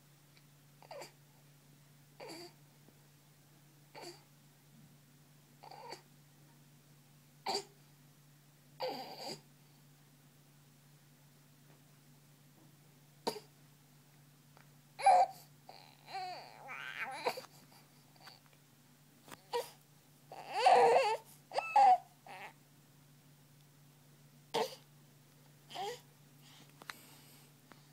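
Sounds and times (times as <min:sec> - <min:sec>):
faint low hum: 0:00.0 - 0:27.9
infant grunting and fussing: 0:00.8 - 0:01.2, 0:02.2 - 0:02.6, 0:03.9 - 0:04.3, 0:05.6 - 0:06.1, 0:07.4 - 0:07.7, 0:08.8 - 0:09.5, 0:13.2 - 0:13.5, 0:15.0 - 0:18.4, 0:19.4 - 0:22.6, 0:25.7 - 0:26.0.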